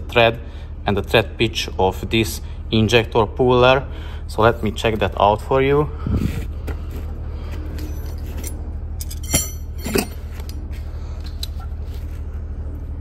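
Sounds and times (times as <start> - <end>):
steady low hum: 0.0 - 13.0
metal tools clinking: 7.8 - 10.6.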